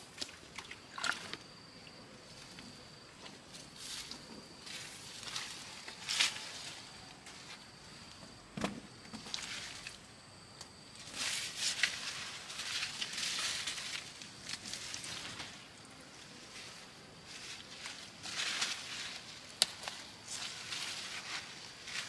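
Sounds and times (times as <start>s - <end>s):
rustling and brushing: 3.2s - 8.2s, 11.0s - 22.0s.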